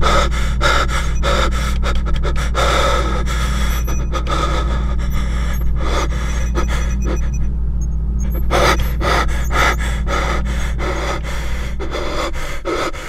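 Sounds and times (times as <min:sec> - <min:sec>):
man gasping and panting: 0:00.0 - 0:07.4, 0:08.2 - 0:13.0
steady low hum: 0:00.0 - 0:13.0.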